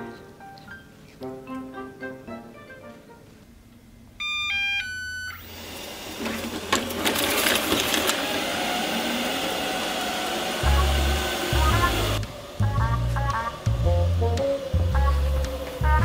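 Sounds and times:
electronic jingle of beeps: 4.2 - 5.4
robot vacuum whirring hiss: 5.4 - 12.6
music with deep bass: 10.6 - 16.0.

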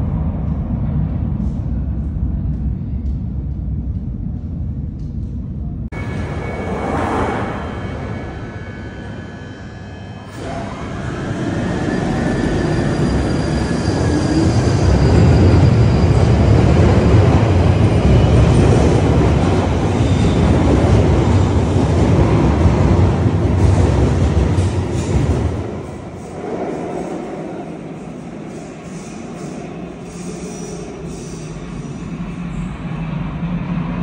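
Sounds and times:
deep train rumble: 0.0 - 34.0
train motor whine: 6.0 - 13.8.

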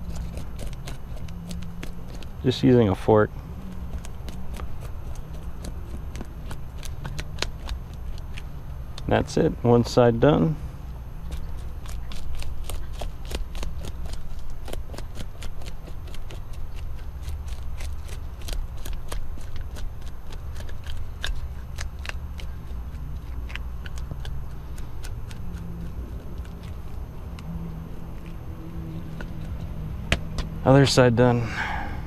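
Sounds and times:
fork scraping fish scales: 0.0 - 2.9
low steady rumble: 0.0 - 32.0.

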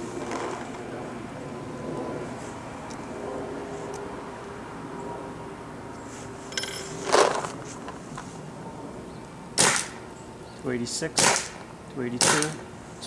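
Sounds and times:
metallic clink: 6.5 - 7.1
paintball marker shots: 9.6 - 10.0, 11.2 - 11.6, 12.2 - 12.6.

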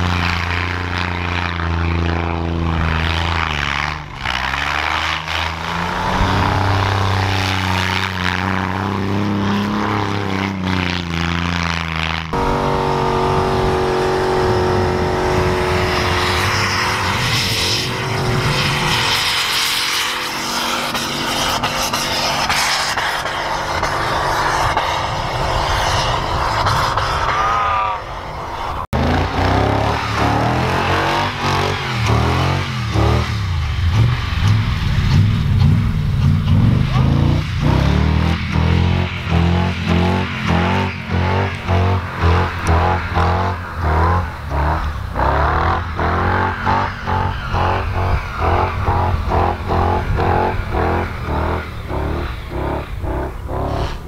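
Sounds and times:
tyres spinning in snow: 0.0 - 28.0
off-road engines revving: 0.0 - 54.0
vehicle engine at high revs: 0.0 - 54.0.

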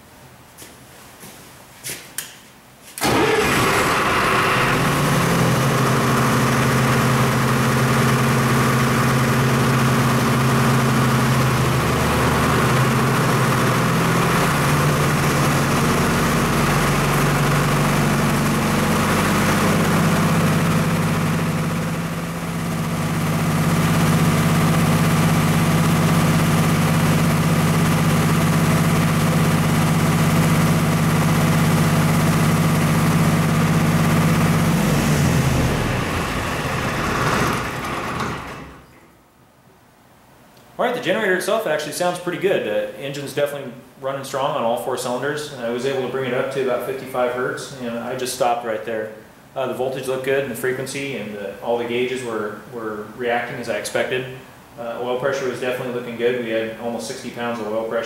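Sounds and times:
diesel generator starting and running: 3.0 - 39.4.

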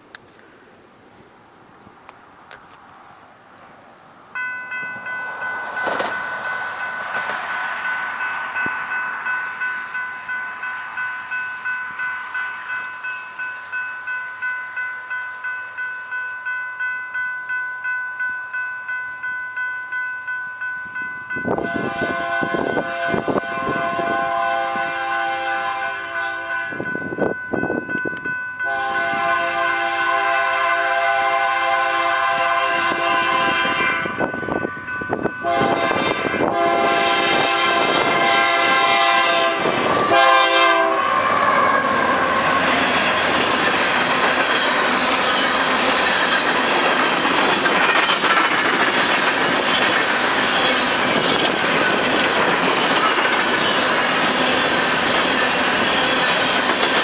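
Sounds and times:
railroad crossing bell ringing: 4.3 - 57.0
locomotive air horn blasts: 21.6 - 26.8, 28.6 - 34.2, 35.4 - 43.1.

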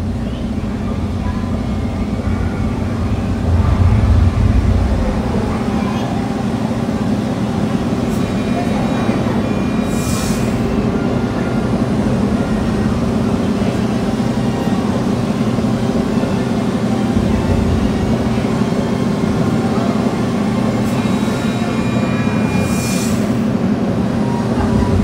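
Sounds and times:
loud low rumble: 0.0 - 8.1, 16.6 - 20.3, 24.6 - 25.0.

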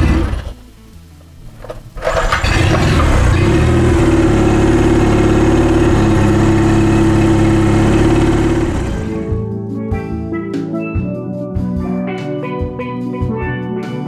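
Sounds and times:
outboard motor running: 0.0 - 0.6, 1.6 - 9.3.

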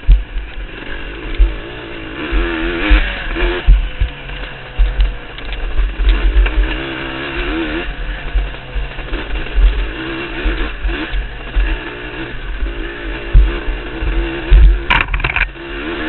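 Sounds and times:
heavy low thumps: 0.0 - 0.6
dirt bike engine revving: 0.0 - 16.0.

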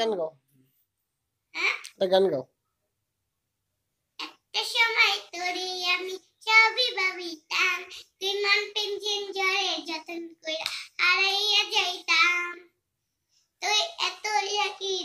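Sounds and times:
girl singing: 4.2 - 12.7, 13.6 - 15.0.

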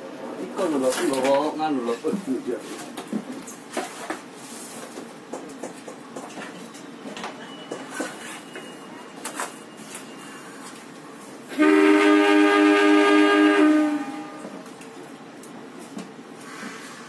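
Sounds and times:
railway station background: 0.0 - 17.0
scattered clicks and knocks: 4.8 - 9.5
two-tone train horn: 11.5 - 14.7.

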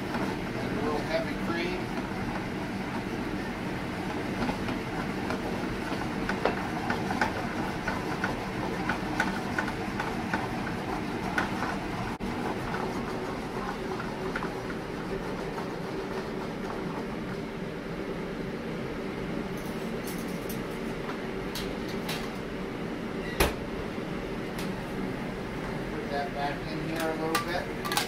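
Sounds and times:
sauce sizzling and bubbling in pan: 1.6 - 17.9.

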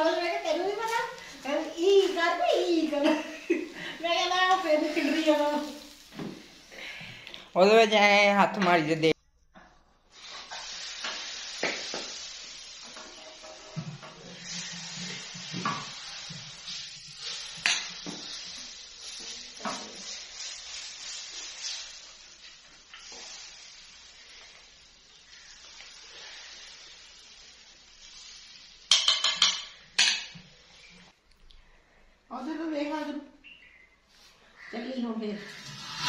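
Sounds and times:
food sizzling in a metal pan: 0.0 - 7.9, 10.0 - 31.2, 34.2 - 36.0
spoon scraping a pan: 35.4 - 36.0.

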